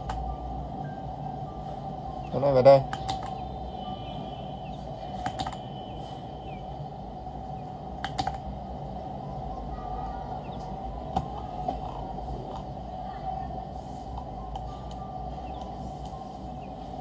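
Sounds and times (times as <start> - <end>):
faint hum: 0.0 - 17.0
computer mouse clicks: 2.9 - 3.4, 5.2 - 5.6, 8.0 - 8.4.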